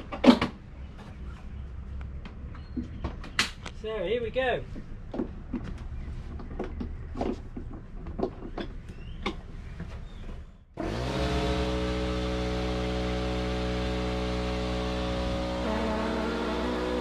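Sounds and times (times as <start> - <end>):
air compressor motor running: 10.8 - 17.0.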